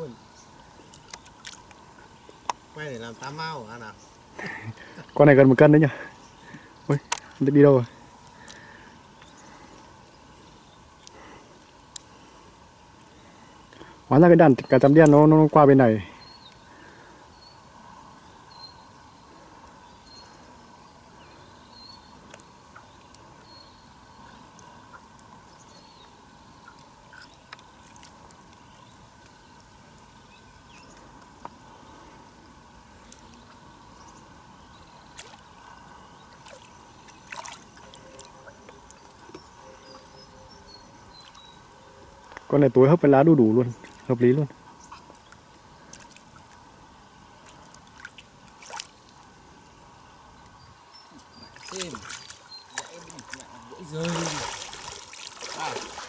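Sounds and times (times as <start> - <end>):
small water splashes and trickles: 0.0 - 3.3, 4.1 - 14.1, 19.2 - 42.5, 43.4 - 56.0
steady outdoor hiss: 0.0 - 56.0
small water splashes: 0.6 - 2.6, 26.6 - 29.7, 35.1 - 39.2, 43.8 - 44.2, 44.9 - 46.7, 47.4 - 49.3, 51.2 - 56.0
faint clicks: 11.0 - 12.1
water trickling and dripping: 36.2 - 39.5, 51.2 - 56.0.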